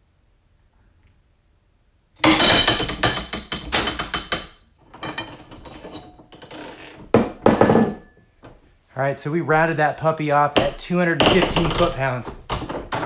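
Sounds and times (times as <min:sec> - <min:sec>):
ratchet clicking and clattering: 0:02.2 - 0:04.6.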